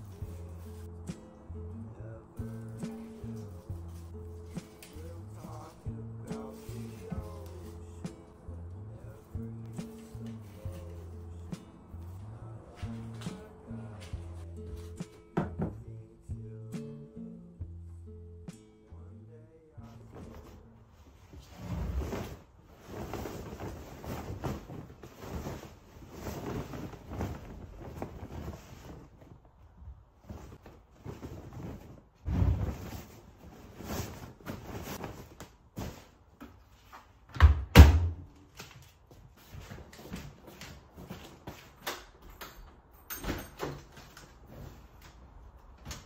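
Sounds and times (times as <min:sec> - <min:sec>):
clothes rustling: 0:00.0 - 0:01.4, 0:02.4 - 0:08.4, 0:09.1 - 0:15.4, 0:19.8 - 0:37.3
washing machine door thumping shut: 0:37.4 - 0:38.2.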